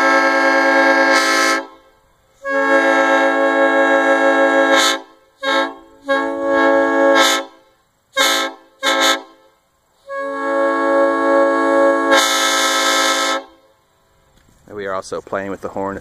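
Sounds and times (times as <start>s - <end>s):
air horn toots and blasts: 0.0s - 13.8s.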